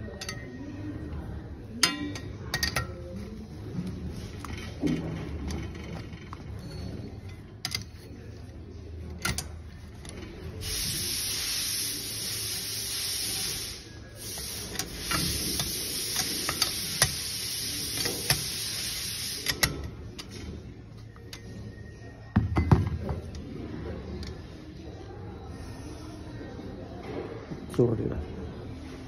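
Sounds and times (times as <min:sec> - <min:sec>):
compressed air hissing from nozzle: 0:10.6 - 0:19.8.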